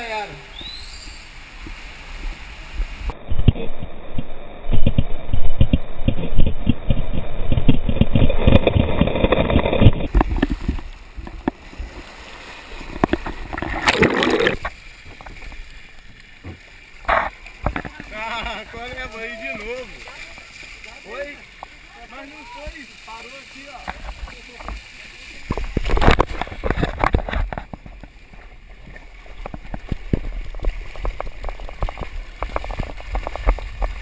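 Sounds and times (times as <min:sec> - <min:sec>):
rushing water on a slide: 0:00.0 - 0:34.0.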